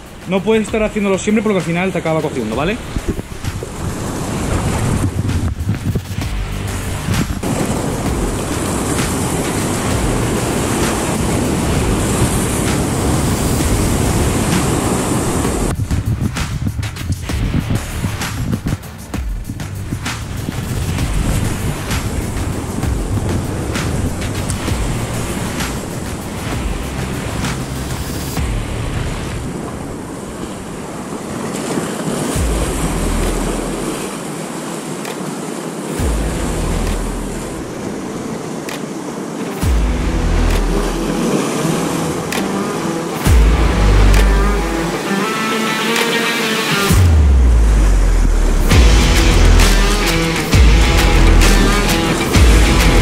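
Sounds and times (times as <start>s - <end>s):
surf breaking over rocks: 0.0s - 53.0s
wind on microphone: 2.8s - 45.1s.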